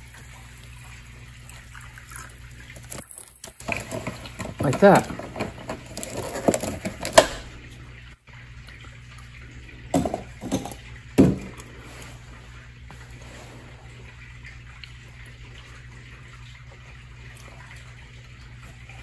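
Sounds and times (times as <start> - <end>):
water sloshing in glass jar: 1.6 - 7.5, 9.9 - 12.2.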